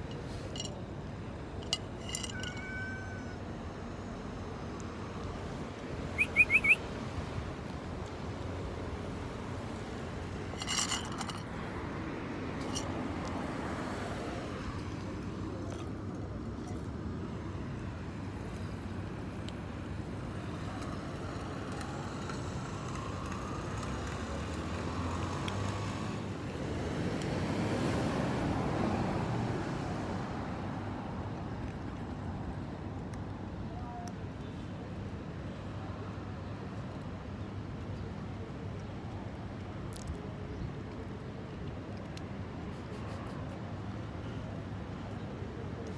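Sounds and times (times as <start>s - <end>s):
road traffic noise: 0.0s - 45.9s
short high chirps: 6.2s - 6.8s.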